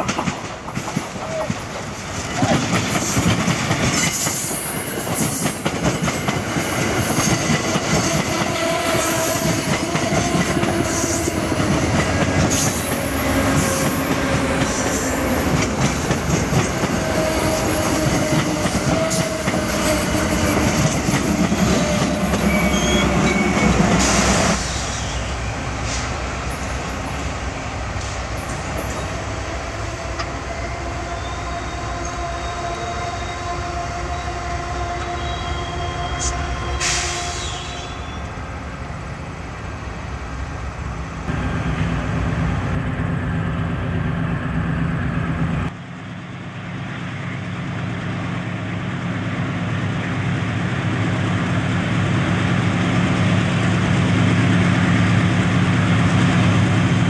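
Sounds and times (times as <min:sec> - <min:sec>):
train wheels clattering over rails: 0:00.0 - 0:24.5
distant train rumble: 0:00.0 - 0:57.0.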